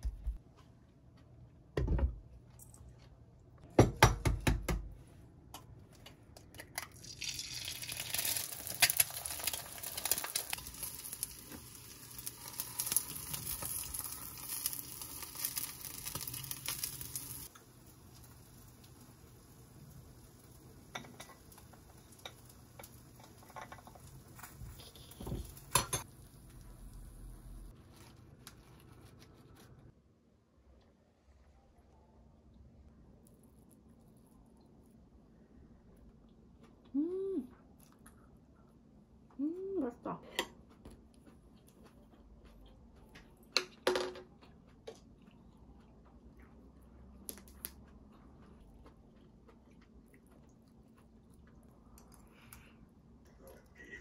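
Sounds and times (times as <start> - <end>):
food sizzling in a frying pan: 7.0 - 27.7
utensils clattering and stirring: 20.9 - 26.1.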